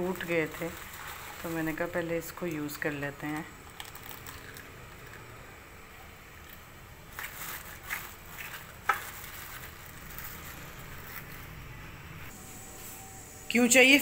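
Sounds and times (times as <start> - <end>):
egg cracking: 0.0 - 5.6.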